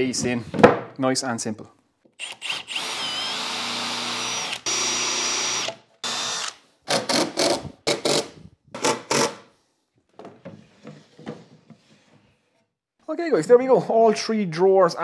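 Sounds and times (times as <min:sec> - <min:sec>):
cordless drill driving screws: 0:02.2 - 0:08.2.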